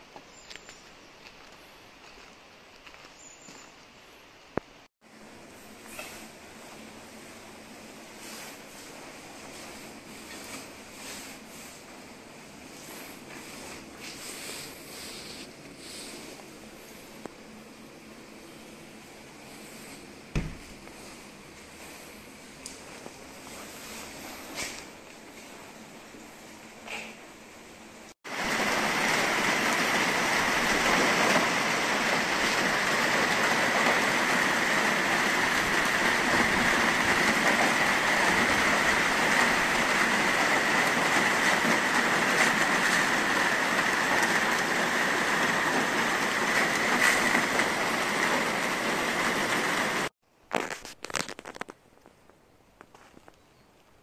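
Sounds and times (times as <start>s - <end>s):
loud rush of falling water: 28.3s - 50.1s.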